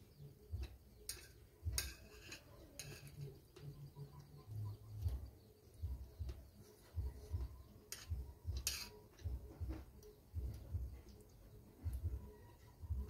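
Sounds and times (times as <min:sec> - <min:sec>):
spoon scraping steel bowl: 0:00.6 - 0:04.5, 0:07.8 - 0:09.2.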